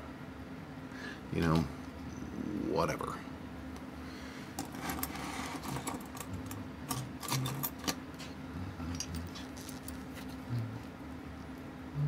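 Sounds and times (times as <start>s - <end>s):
small metal parts clicking: 4.6s - 8.0s, 8.9s - 10.2s.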